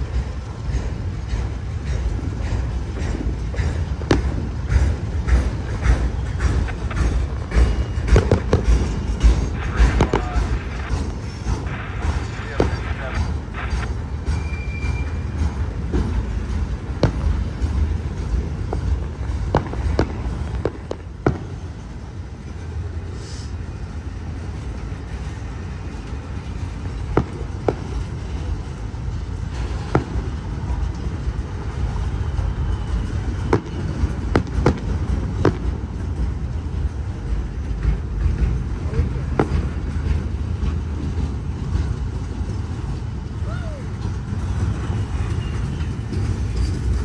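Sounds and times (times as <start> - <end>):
fireworks popping and banging: 0.1 - 21.8, 26.8 - 28.6, 29.5 - 31.0, 33.4 - 41.2.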